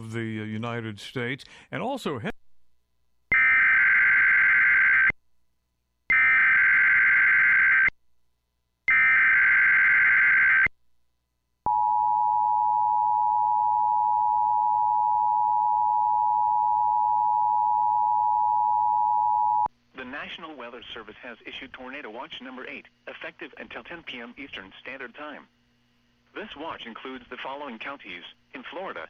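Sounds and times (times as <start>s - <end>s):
steady alarm tone: 6.1s - 7.9s, 8.9s - 10.7s, 11.7s - 19.7s.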